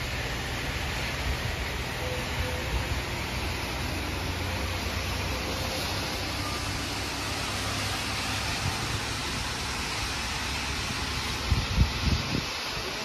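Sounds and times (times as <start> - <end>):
car tyres on wet road: 0.0 - 13.0
low traffic rumble: 0.0 - 13.0
rain hiss: 0.0 - 13.0.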